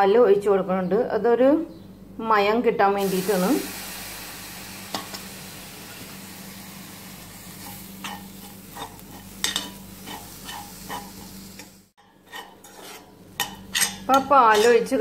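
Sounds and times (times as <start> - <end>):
filling sizzling in steel pan: 3.0 - 15.0
spoon stirring and scraping pan: 7.5 - 15.0.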